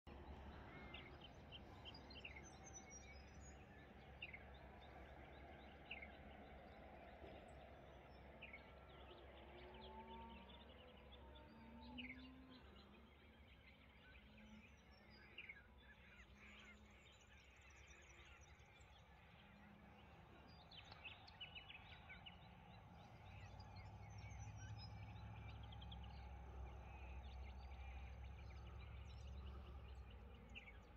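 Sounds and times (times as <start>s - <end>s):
small birds chirping: 0.1s - 30.9s
low steady rumble: 16.0s - 30.9s.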